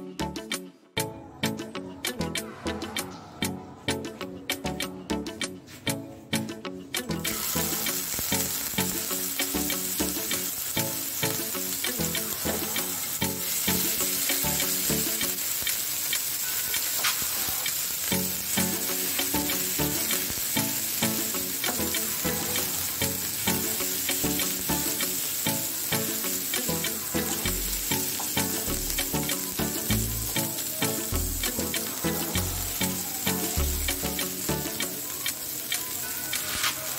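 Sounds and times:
background music: 0.0 - 15.8, 17.8 - 36.9
oil sizzling in a frying pan: 7.2 - 36.9
small clicks: 14.0 - 20.6, 32.8 - 36.9.

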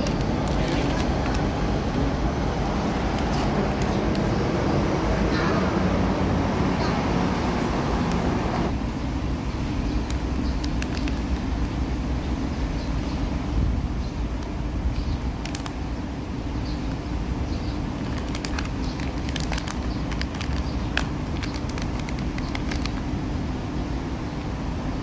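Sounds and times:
plastic wrapper crinkling: 0.0 - 1.5, 10.0 - 11.7, 15.4 - 15.8, 18.0 - 23.1
traffic rumble: 0.0 - 25.0.

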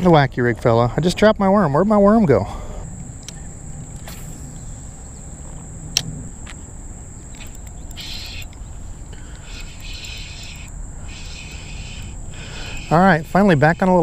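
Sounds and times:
insects buzzing: 0.0 - 14.0
sharp click: 7.3 - 8.6, 9.3 - 13.0.

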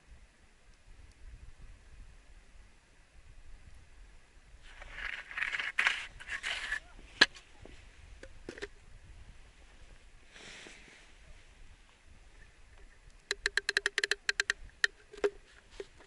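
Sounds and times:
rod rustling and scraping: 4.6 - 7.4
fishing reel click: 13.3 - 15.3.

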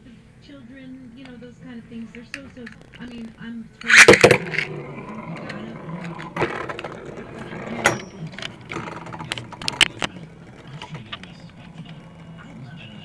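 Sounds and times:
spinning tops whirring: 3.8 - 12.4.

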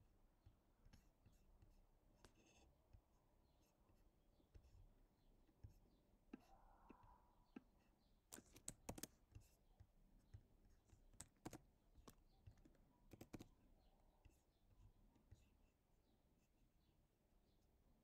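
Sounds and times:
faint keyboard keystrokes and clicks: 7.6 - 15.7.

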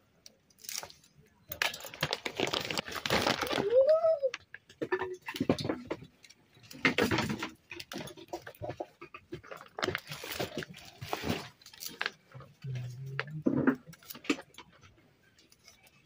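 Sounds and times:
rustling of leaves and sack: 0.6 - 4.4, 9.7 - 13.1.

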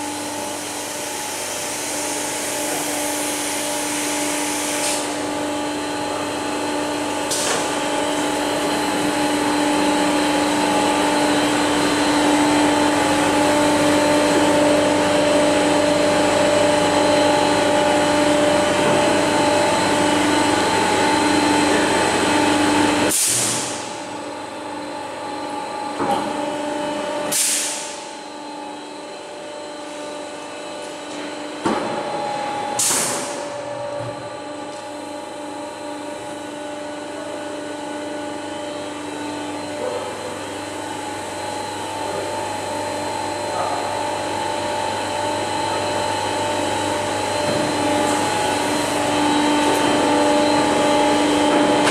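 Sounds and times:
hiss: 27.3 - 27.9
machinery motor whine: 38.3 - 51.9.

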